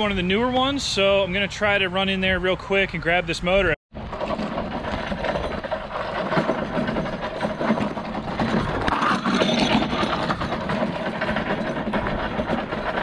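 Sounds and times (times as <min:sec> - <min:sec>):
cart wheels crunching on gravel: 0:04.0 - 0:13.0
tools rattling in bucket: 0:04.0 - 0:13.0.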